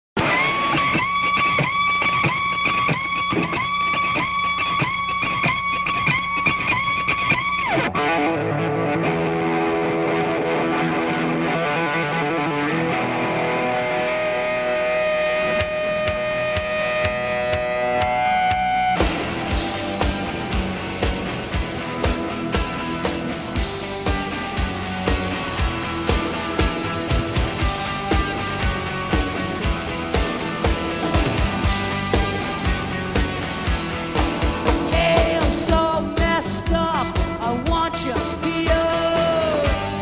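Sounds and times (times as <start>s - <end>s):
electric guitar rock intro: 0.2s - 40.0s
drum hits: 15.4s - 35.8s.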